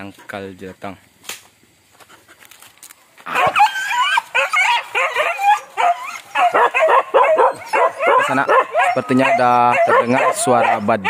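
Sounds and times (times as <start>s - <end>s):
dogs yelping and baying: 3.2s - 11.0s.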